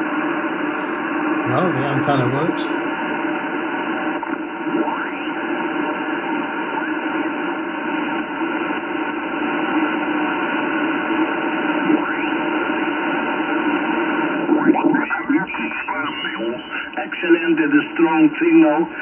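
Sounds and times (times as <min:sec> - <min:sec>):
radio band hiss: 0:00.5 - 0:03.4
faint radio carriers: 0:00.5 - 0:03.9, 0:11.6 - 0:19.0.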